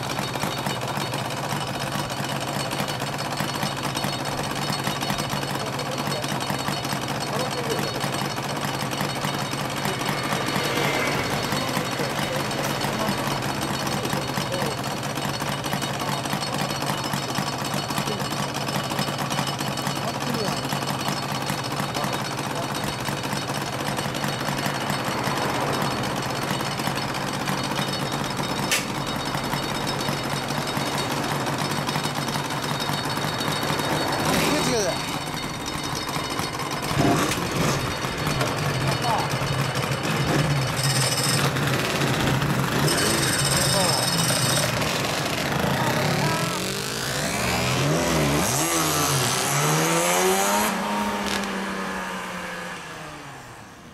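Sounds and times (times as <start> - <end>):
motorcycles idling: 0.0 - 53.9
sharp click: 28.7 - 29.0.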